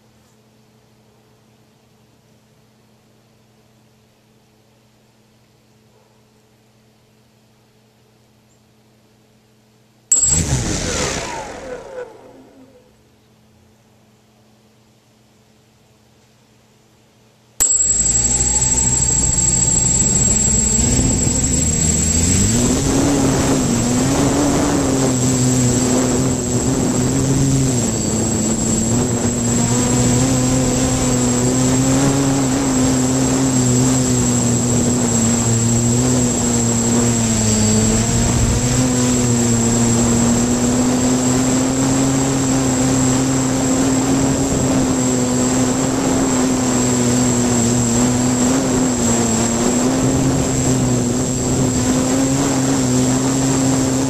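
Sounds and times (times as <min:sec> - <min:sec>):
drone motors and propellers droning: 0:10.1 - 0:13.0, 0:17.6 - 0:54.0
thin high whine: 0:10.1 - 0:13.1, 0:17.6 - 0:54.0.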